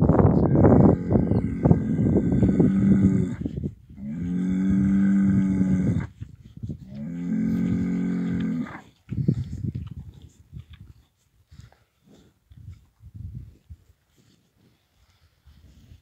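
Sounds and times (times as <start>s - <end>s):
cattle mooing: 0.5s - 3.4s, 4.0s - 6.1s, 7.0s - 8.8s.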